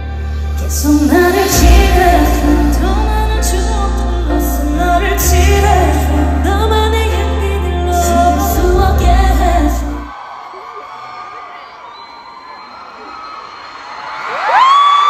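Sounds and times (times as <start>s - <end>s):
women singing pop ballad: 0.2s - 10.1s.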